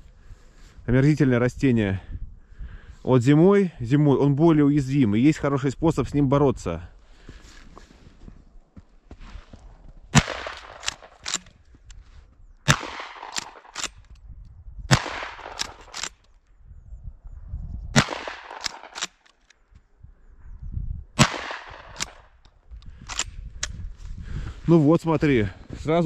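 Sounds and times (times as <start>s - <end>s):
gunshots: 10.1s - 11.5s, 12.7s - 14.0s, 14.9s - 16.2s, 18.0s - 19.2s, 21.2s - 22.3s.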